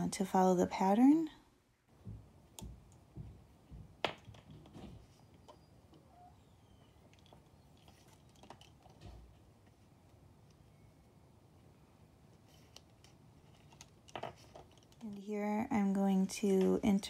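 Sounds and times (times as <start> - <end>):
wooden bobbins clicking together: 4.0 - 6.1, 6.9 - 9.4, 12.6 - 15.2.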